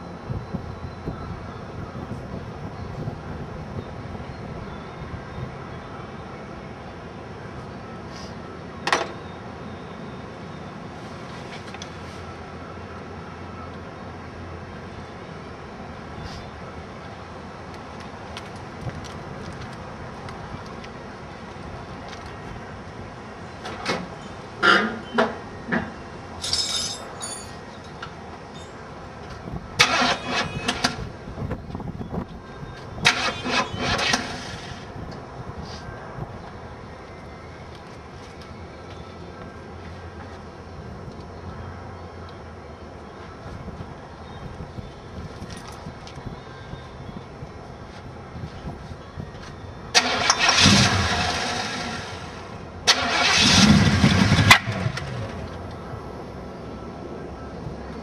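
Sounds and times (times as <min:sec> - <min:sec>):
car engine starter cranking: 0:29.8 - 0:31.0, 0:33.0 - 0:34.8, 0:49.9 - 0:52.3, 0:52.9 - 0:55.1.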